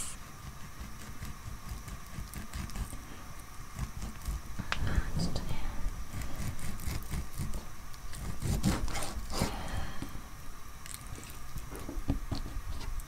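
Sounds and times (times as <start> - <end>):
knife slicing meat: 0.0 - 3.0, 6.1 - 9.5.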